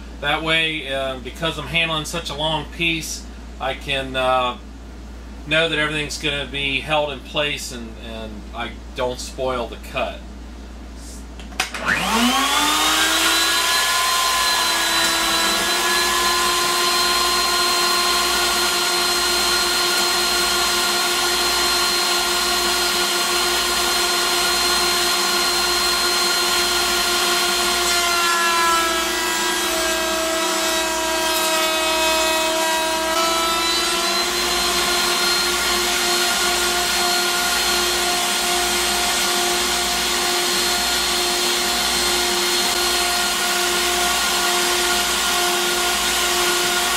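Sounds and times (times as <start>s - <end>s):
wood router motor whining: 11.6s - 46.9s
router bit cutting wood: 11.7s - 46.9s.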